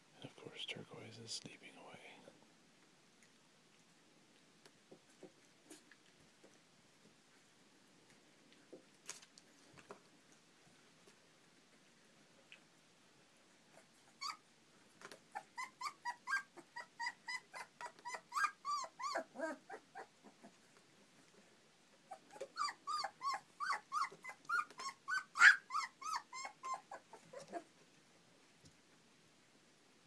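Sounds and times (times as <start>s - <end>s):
puppies yipping and squealing: 13.8s - 14.5s, 15.3s - 20.6s, 22.1s - 27.7s.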